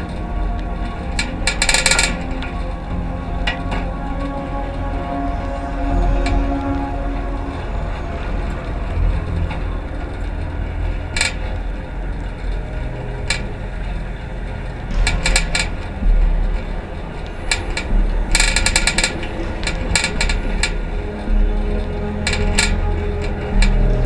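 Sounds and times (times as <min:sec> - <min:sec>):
road and wind rumble: 0:00.0 - 0:24.0
bicycle squeaking and creaking: 0:05.6 - 0:24.0.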